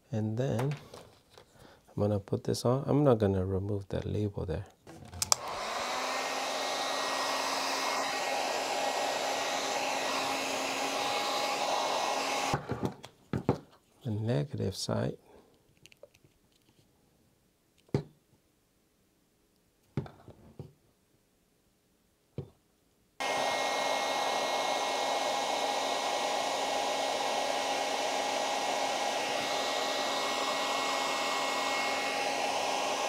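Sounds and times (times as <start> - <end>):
heat gun fan whirring: 5.2 - 12.8, 23.2 - 33.0.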